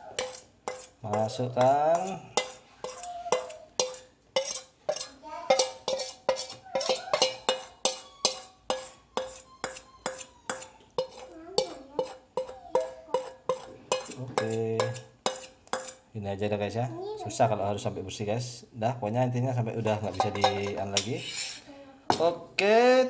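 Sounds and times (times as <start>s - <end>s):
metal spoon scraping metal bowl: 0.0s - 16.1s, 19.8s - 21.7s.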